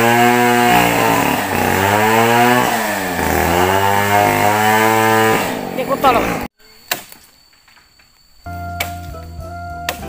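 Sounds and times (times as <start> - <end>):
chainsaw running hard: 0.0 - 6.5.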